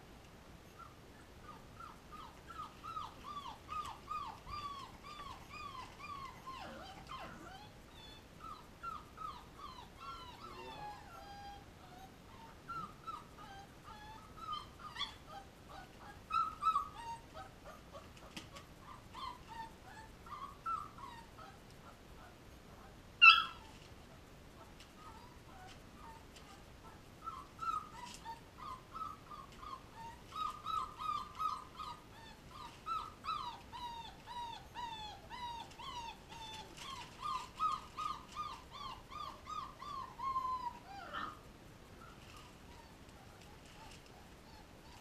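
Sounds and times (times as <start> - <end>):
puppies whining: 0.7 - 22.0, 23.2 - 23.8, 24.6 - 45.0
puppy yelping: 0.8 - 22.0, 23.2 - 23.7, 25.0 - 41.4, 42.0 - 45.0.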